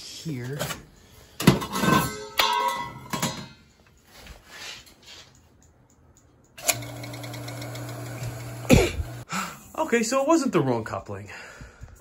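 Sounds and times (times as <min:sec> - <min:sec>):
pump electric hum: 0:06.6 - 0:09.2.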